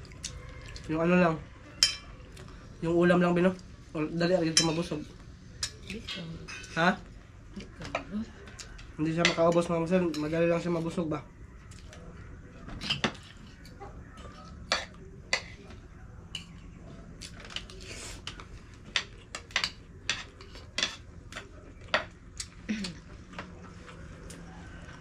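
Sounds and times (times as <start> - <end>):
low steady hum: 0.0 - 25.0
cutlery clinking on plates: 12.7 - 15.7, 17.2 - 22.2.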